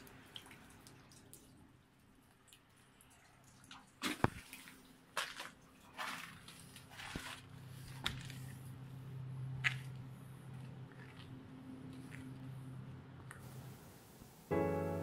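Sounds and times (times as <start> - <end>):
scuffs and handling noise: 4.0 - 8.7
footsteps on wet gritty ground: 4.1 - 8.6, 9.6 - 12.5
low steady hum: 4.4 - 15.0.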